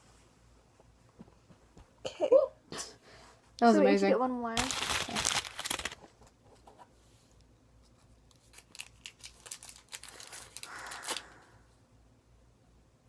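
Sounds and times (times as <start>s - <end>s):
candy wrappers crinkling: 4.6s - 6.2s, 8.2s - 11.6s.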